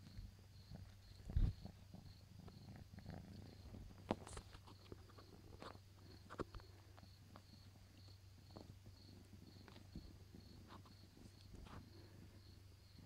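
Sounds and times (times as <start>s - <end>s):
kitten scuffling on carpet: 7.2s - 12.2s.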